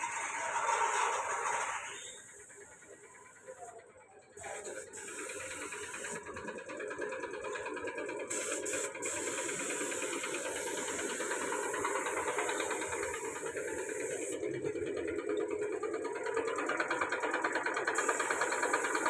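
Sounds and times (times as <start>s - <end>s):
fast-pulsing mechanical rattle: 0.0s - 19.0s
paint spray gun hissing: 1.9s - 3.6s, 4.4s - 6.3s, 8.2s - 14.5s, 17.9s - 19.0s.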